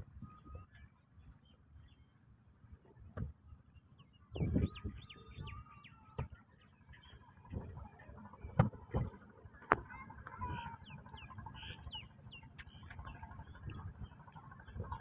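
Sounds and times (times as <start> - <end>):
low rumble: 7.0 - 15.0.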